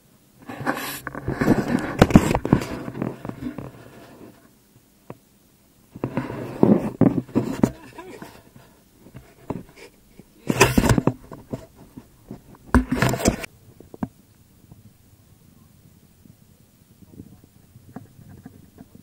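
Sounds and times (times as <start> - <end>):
man laughing and talking: 7.6 - 8.4.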